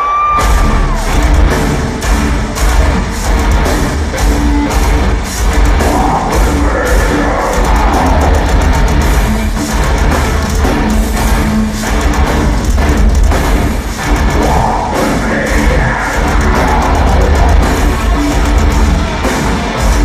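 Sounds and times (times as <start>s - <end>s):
heavy metal band playing live: 0.0s - 20.0s.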